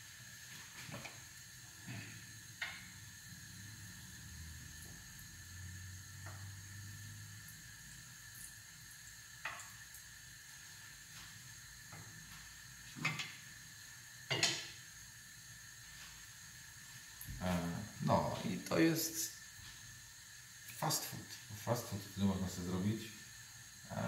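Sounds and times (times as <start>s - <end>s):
food sizzling in oil: 0.0s - 24.0s
kitchen utensils clattering: 14.3s - 14.7s.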